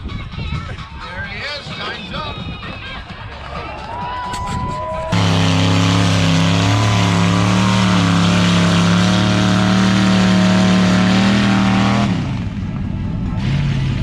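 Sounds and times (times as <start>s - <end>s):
engine droning at high revs: 5.1s - 14.0s.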